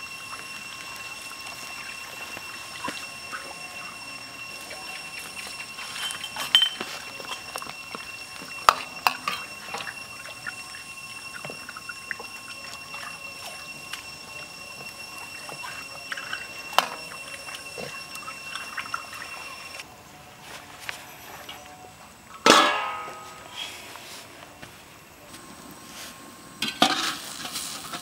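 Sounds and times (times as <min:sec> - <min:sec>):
liquid sloshing: 0:00.1 - 0:19.8
ladle stirring soup: 0:00.3 - 0:19.5.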